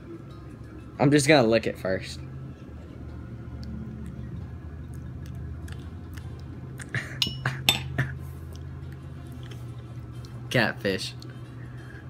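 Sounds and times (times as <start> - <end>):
metal spoon clinking against dish: 7.2 - 7.9.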